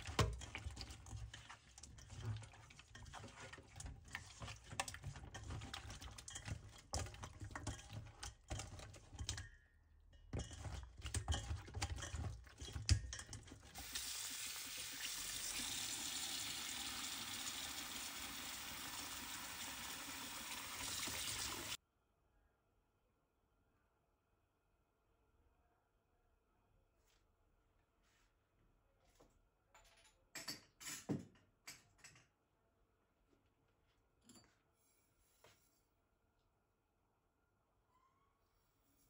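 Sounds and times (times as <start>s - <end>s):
hands handling fish in metal bowl: 0.0s - 9.5s, 10.2s - 13.9s
tap water running into bowl: 12.7s - 21.8s.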